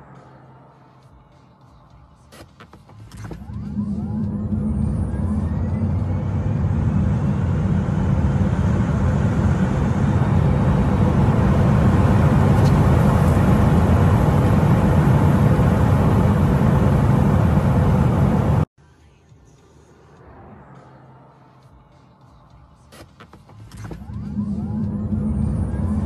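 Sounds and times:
road and wind rush: 2.3s - 18.7s, 19.6s - 26.0s
electric motor whine: 3.3s - 18.7s, 23.9s - 26.0s.

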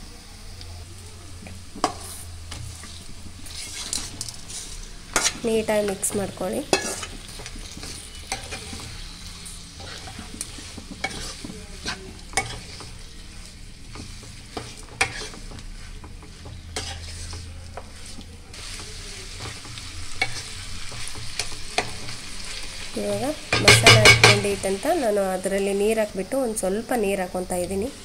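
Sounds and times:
chicken sizzling in hot oil: 0.0s - 28.0s
metal spoon scraping a pan: 1.4s - 24.8s.

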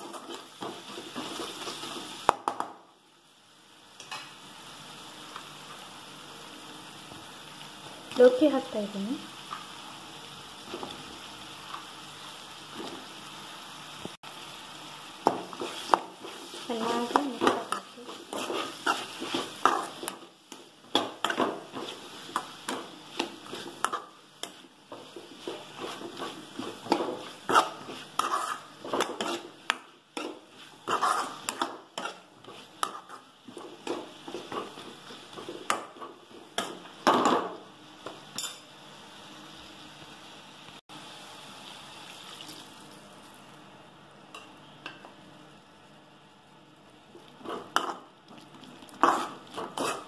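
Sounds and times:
spatula scraping a metal pan: 15.6s - 20.2s, 25.2s - 29.6s, 30.2s - 34.9s, 49.0s - 50.0s.

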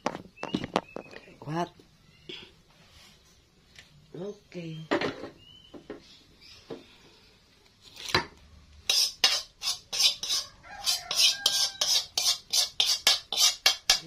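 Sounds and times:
metal utensil stirring pot: 8.8s - 14.0s.

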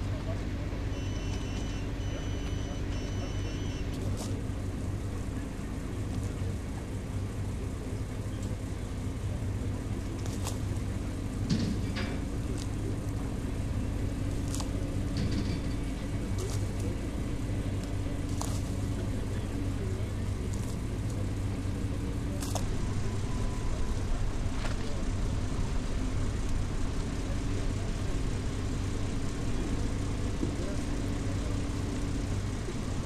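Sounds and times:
engine humming: 0.0s - 33.0s
sharp clicks and knocks: 11.4s - 12.7s, 14.4s - 16.8s.

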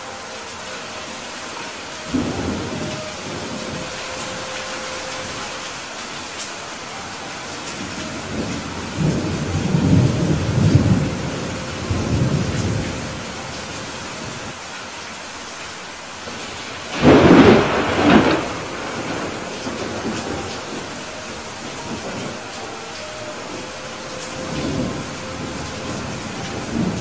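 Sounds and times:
steady rain hiss: 0.0s - 27.0s
rolling thunder rumble: 7.8s - 14.5s, 16.3s - 27.0s
loud thunderclap: 16.9s - 20.8s.

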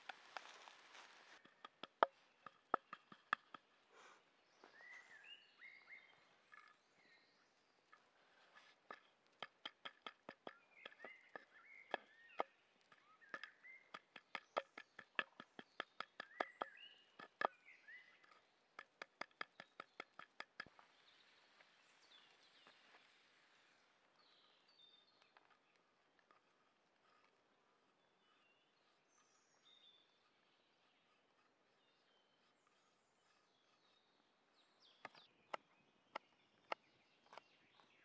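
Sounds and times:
small birds chirping: 0.0s - 38.0s
knife chopping walnuts: 13.2s - 17.5s.

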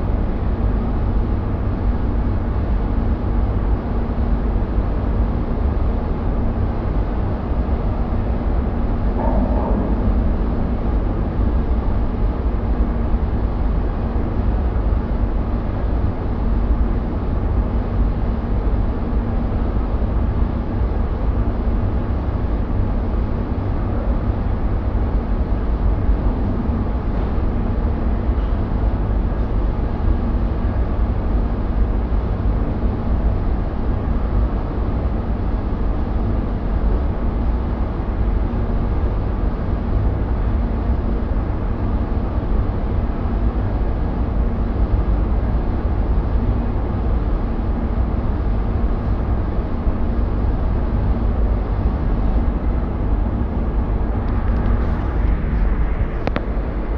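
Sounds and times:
faint low hum: 8.6s - 12.2s.

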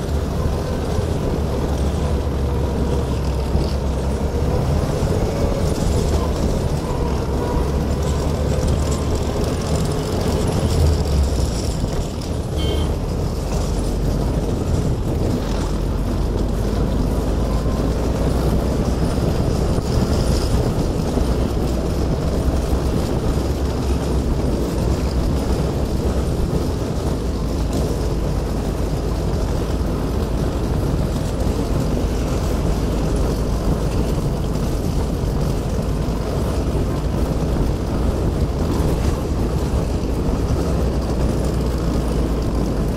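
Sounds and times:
motorcycle engine running: 0.0s - 42.9s
rattle of tracks: 0.0s - 42.9s.

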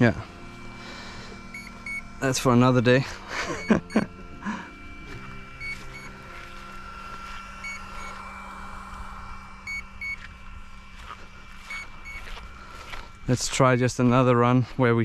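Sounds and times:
steady electrical hum: 0.0s - 15.0s
short high beeps: 1.5s - 2.1s, 5.6s - 6.2s, 9.7s - 10.2s, 11.7s - 12.3s.

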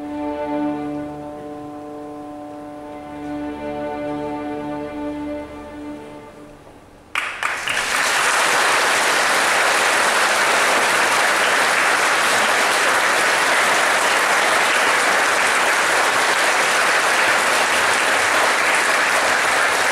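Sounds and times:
large audience applauding: 7.1s - 19.9s.

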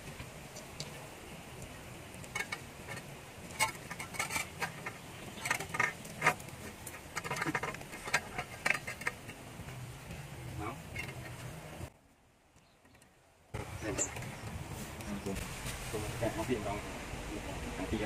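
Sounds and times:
stick clicking and scraping: 1.6s - 9.8s.

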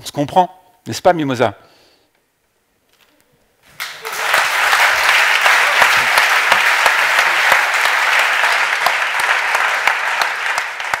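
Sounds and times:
audience applause: 3.7s - 11.0s.

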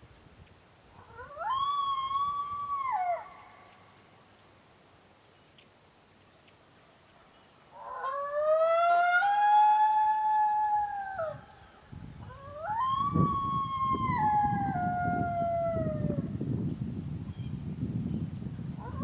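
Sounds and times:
coyote howls: 1.0s - 3.6s, 7.7s - 11.6s, 12.2s - 16.3s, 18.8s - 19.0s.

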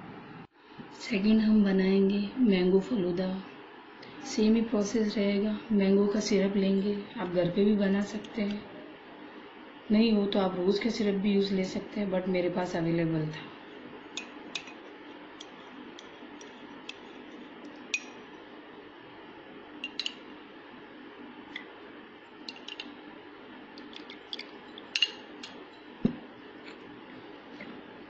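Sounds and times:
metal spoon clinking on glass: 14.1s - 14.8s, 17.9s - 18.3s, 19.8s - 20.2s, 24.3s - 25.8s.

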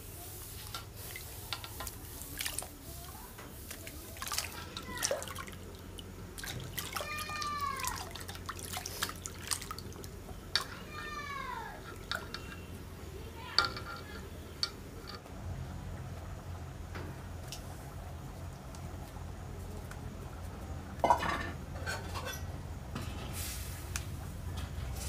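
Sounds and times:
water splashing in a metal basin: 0.5s - 15.2s.

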